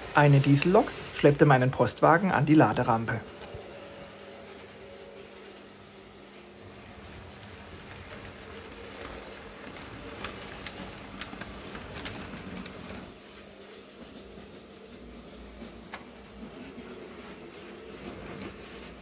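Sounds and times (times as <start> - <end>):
model train rolling on track: 0.0 - 19.0
wheels clicking over rail joints: 6.7 - 13.2.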